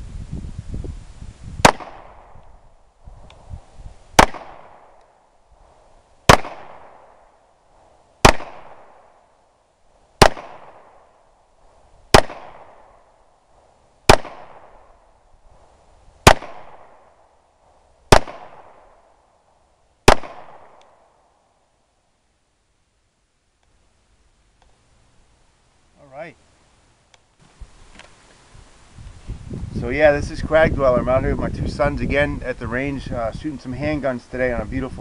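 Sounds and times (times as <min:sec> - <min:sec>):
pistol shots echoing: 0:01.6 - 0:02.3, 0:04.2 - 0:05.0, 0:06.3 - 0:07.2, 0:08.2 - 0:09.2, 0:10.2 - 0:11.1, 0:12.2 - 0:13.0, 0:14.1 - 0:14.8, 0:16.2 - 0:17.1, 0:18.1 - 0:19.0, 0:20.1 - 0:21.1.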